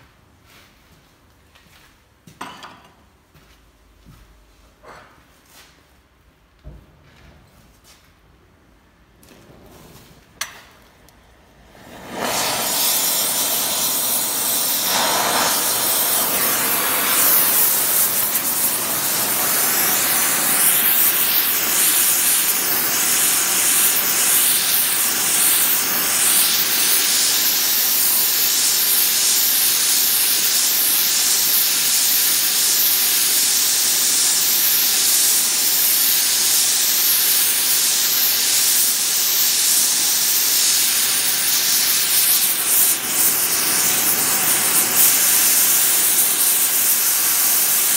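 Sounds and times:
gas torch hissing: 11.5 - 47.9.

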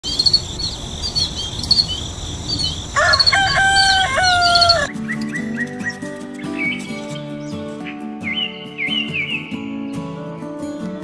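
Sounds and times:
small birds chirping: 0.0 - 10.6
rooster crowing: 2.5 - 4.9
music: 3.0 - 11.0.

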